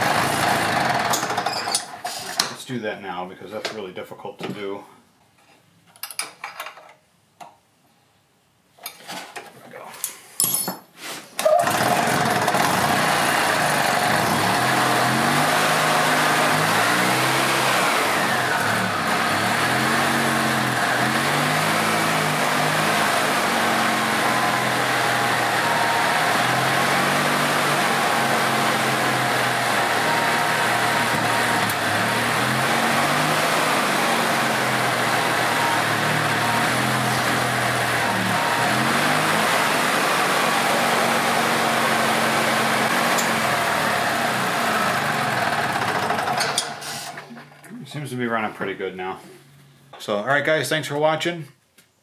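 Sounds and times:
golf cart engine running: 0:00.0 - 0:01.4, 0:11.5 - 0:47.0.

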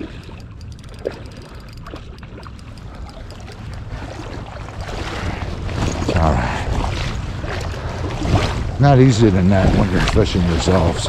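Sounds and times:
faint ticks and knocks: 0:00.0 - 0:04.5
river water flowing: 0:00.0 - 0:11.0
wind rumbling on microphone: 0:00.0 - 0:11.0.

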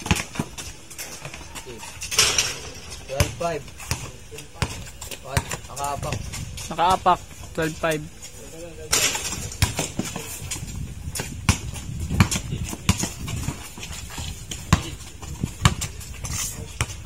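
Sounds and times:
basketball bouncing on hard court: 0:00.0 - 0:01.6, 0:02.8 - 0:06.4, 0:09.1 - 0:17.0
players' footsteps: 0:00.0 - 0:17.0.

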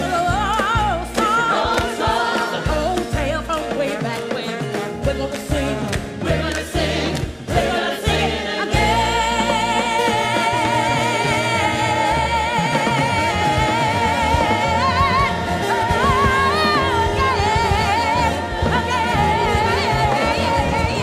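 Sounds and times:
soloist and ensemble singing: 0:00.0 - 0:04.1, 0:04.7 - 0:21.0
live band playing: 0:00.0 - 0:21.0.

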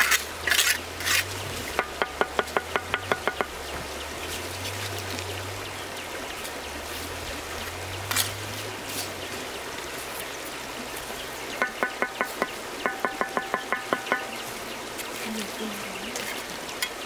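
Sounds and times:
trowel scraping wet mortar: 0:00.0 - 0:01.8
trowel handle tapping brick: 0:11.6 - 0:14.3.

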